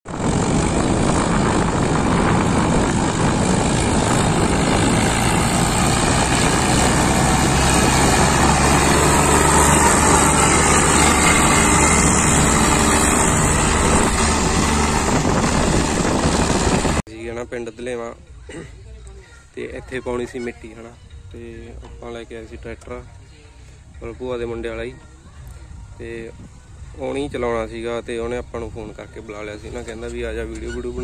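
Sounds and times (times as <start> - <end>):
tractor engine running under load: 0.1 - 17.0.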